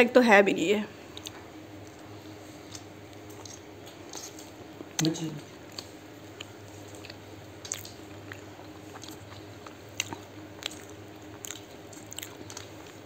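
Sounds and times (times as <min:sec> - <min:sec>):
person chewing food: 0:01.1 - 0:13.0
wet mouth clicks and smacks: 0:07.6 - 0:08.0.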